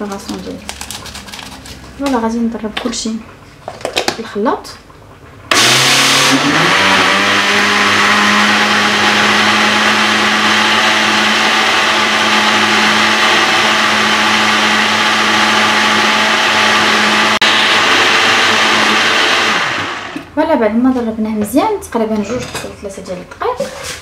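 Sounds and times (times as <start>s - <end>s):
blender motor running: 5.5s - 20.3s.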